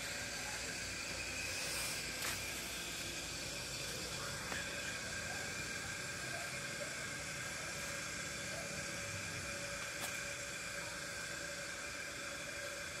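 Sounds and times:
faint steady tones: 0:00.0 - 0:13.0
steady background hiss: 0:00.0 - 0:13.0.

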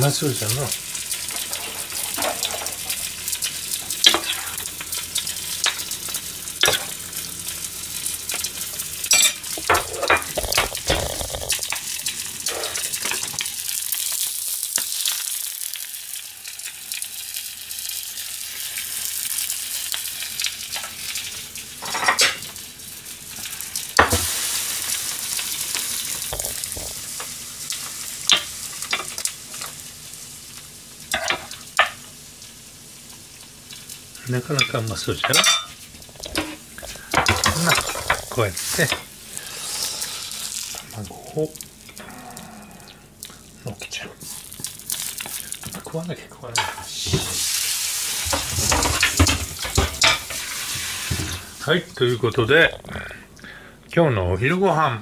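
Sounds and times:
food sizzling in a frying pan: 0:00.0 - 0:53.4.

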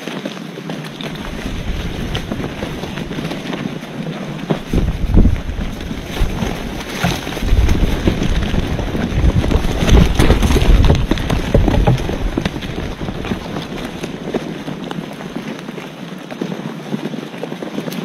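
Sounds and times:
wind buffeting microphone: 0:00.9 - 0:16.2
clicks and knocks: 0:04.3 - 0:14.8.

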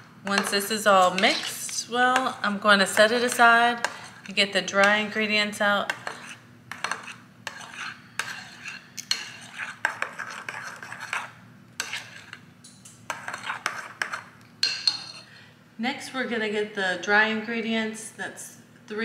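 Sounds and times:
spoon clinking in glass bowl: 0:14.6 - 0:15.2.

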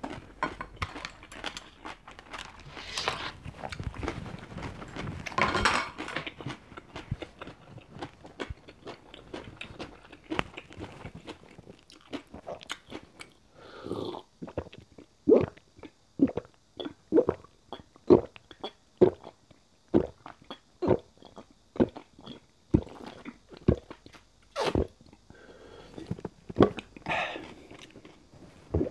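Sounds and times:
person gulping water: 0:14.0 - 0:17.5, 0:19.0 - 0:25.2, 0:25.9 - 0:28.9.

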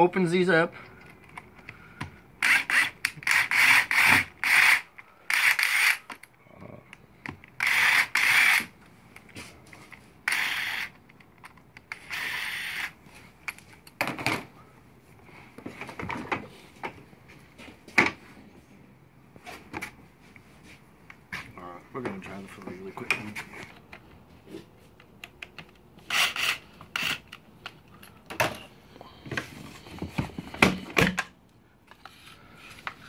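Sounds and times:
cordless drill bursts: 0:02.4 - 0:06.0, 0:07.6 - 0:08.7, 0:10.3 - 0:10.9
screw scratching in plastic: 0:02.4 - 0:06.1, 0:07.6 - 0:08.7, 0:10.3 - 0:11.0, 0:11.9 - 0:13.0, 0:26.1 - 0:27.4.

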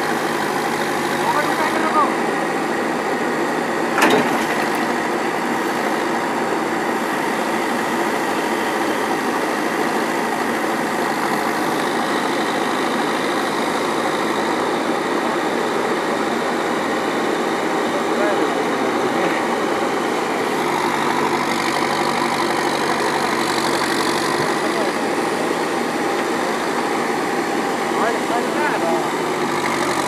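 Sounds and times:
diesel engine running: 0:00.0 - 0:30.0
sharp metallic clank: 0:04.0 - 0:04.6.

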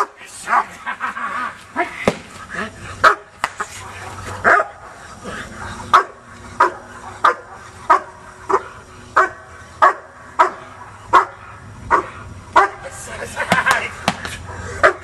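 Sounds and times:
dog barking: 0:03.0 - 0:03.3, 0:04.3 - 0:05.0, 0:05.9 - 0:12.8, 0:14.8 - 0:15.0.

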